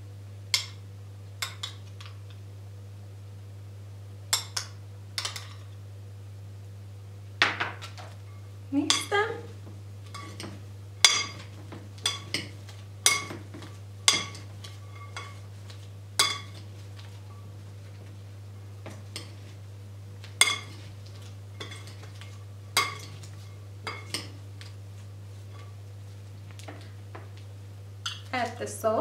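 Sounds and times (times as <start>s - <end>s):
metal spoon clinking glass bowl: 10.1s - 11.4s, 12.0s - 12.5s, 14.1s - 15.4s, 16.2s - 16.6s, 21.6s - 23.3s.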